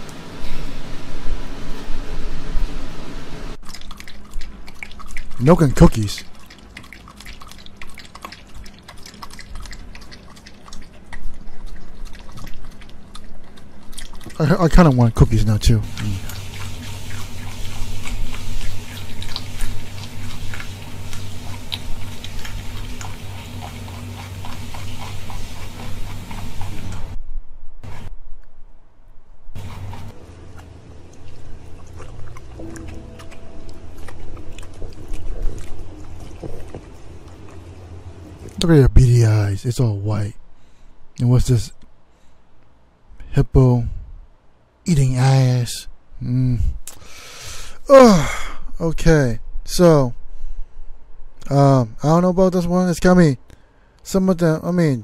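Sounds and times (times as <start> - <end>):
dog lapping milk: 3.6 - 15.2, 15.8 - 27.2, 31.1 - 38.6
background music: 32.5 - 35.6.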